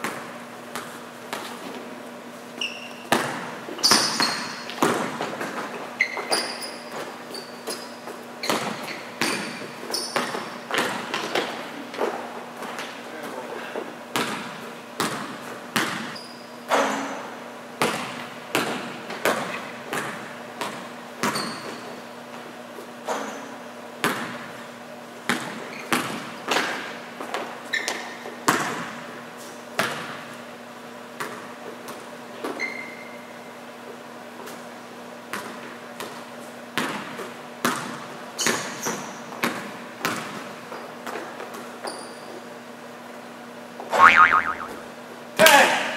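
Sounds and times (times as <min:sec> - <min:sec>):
sneaker squeaks: 0:02.6 - 0:03.2, 0:03.8 - 0:04.7, 0:06.0 - 0:10.6, 0:21.2 - 0:22.0, 0:25.6 - 0:26.1, 0:27.7 - 0:28.2, 0:32.4 - 0:33.3, 0:38.4 - 0:39.2, 0:41.8 - 0:42.4.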